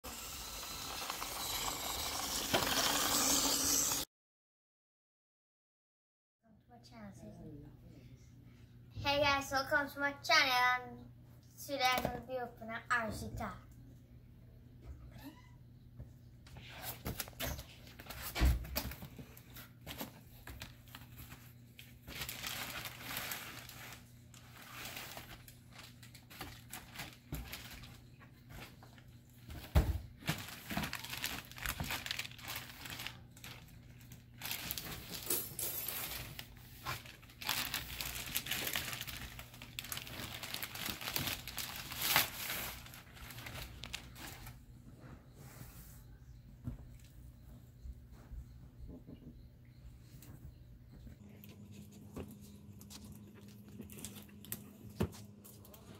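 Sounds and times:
cardboard and plastic crinkling: 0:16.6 - 0:44.6.

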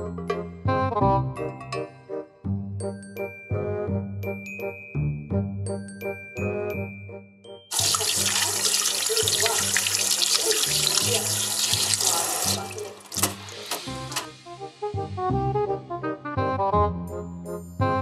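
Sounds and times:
tap water running onto hands: 0:07.7 - 0:14.4.

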